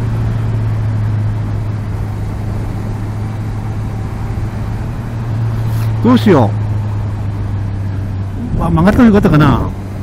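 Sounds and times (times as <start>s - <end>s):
motorcycle engine humming: 0.0s - 10.0s
wind and road noise: 0.0s - 10.0s.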